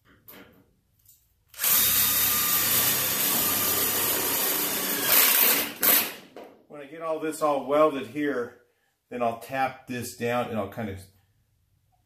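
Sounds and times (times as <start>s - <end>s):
cordless drill driving screw: 1.5s - 6.1s.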